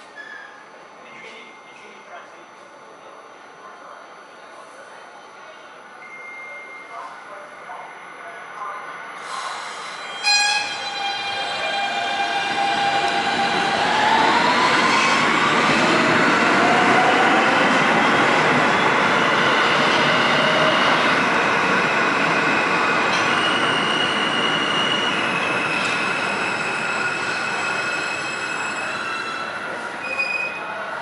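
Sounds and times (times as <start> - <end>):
high wheel squeals: 9.8 - 11.4.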